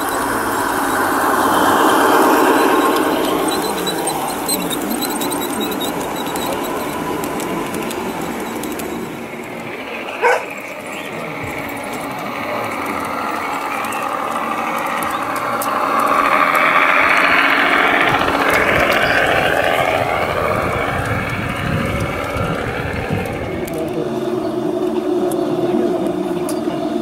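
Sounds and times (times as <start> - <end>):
model railcar wheels whirring: 0.0 - 27.0
sharp yelp: 10.2 - 10.6.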